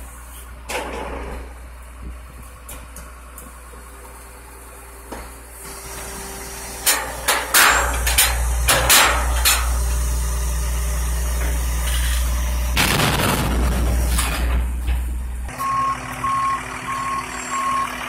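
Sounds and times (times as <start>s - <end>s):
truck engine running: 0.0s - 18.0s
loud metal bangs: 6.8s - 9.8s, 12.7s - 15.4s.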